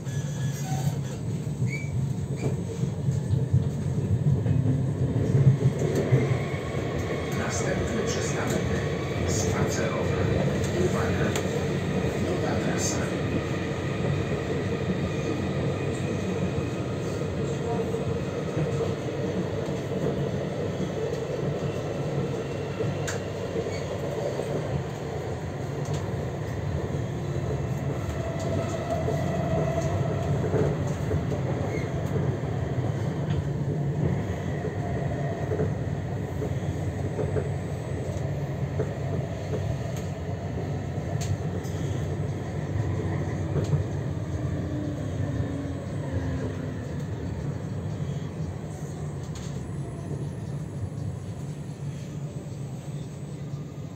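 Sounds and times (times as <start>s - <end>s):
tram wheels rumbling on rails: 0.0s - 53.9s.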